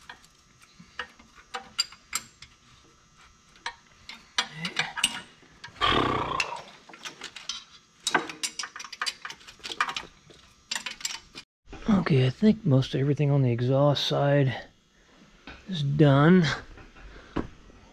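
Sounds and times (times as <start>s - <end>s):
wrenches clinking on metal: 4.1s - 5.8s, 6.5s - 11.4s.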